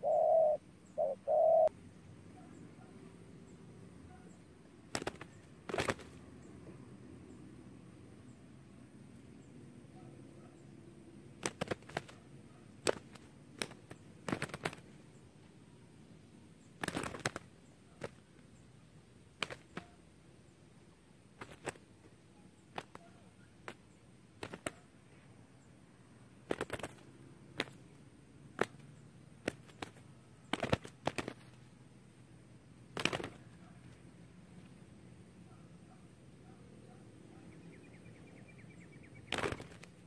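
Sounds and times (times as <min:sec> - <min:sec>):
dove wings slapping: 0:04.9 - 0:06.2, 0:11.3 - 0:15.0, 0:16.8 - 0:18.4, 0:19.3 - 0:20.0, 0:21.3 - 0:22.0, 0:22.7 - 0:24.9, 0:26.4 - 0:31.6, 0:32.9 - 0:34.0, 0:39.3 - 0:40.0.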